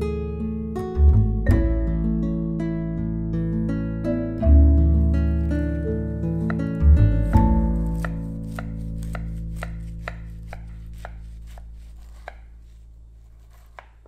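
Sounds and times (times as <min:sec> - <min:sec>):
held music chord: 0:00.0 - 0:09.6
knife cutting crunchy pie crust: 0:05.4 - 0:14.0.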